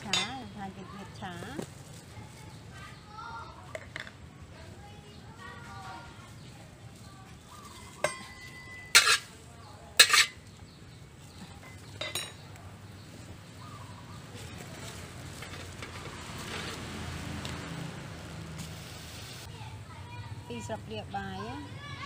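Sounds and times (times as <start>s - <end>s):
metal cookware clanking: 0.0s - 0.5s, 8.0s - 9.4s, 10.0s - 10.5s, 11.5s - 12.5s.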